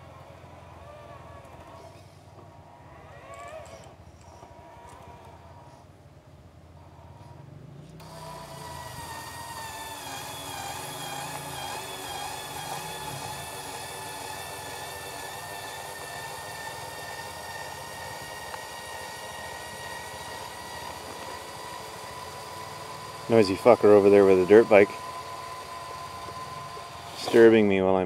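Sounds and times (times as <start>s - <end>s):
distant dirt bike engine: 0.0s - 28.0s
electric motor whine: 6.8s - 28.0s.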